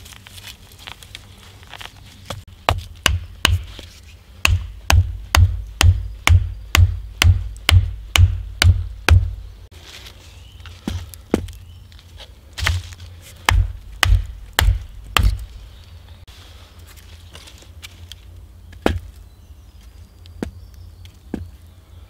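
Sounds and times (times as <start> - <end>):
hatchet pounding wooden stake: 2.6 - 3.8, 4.4 - 9.4, 13.4 - 15.6, 18.8 - 19.1.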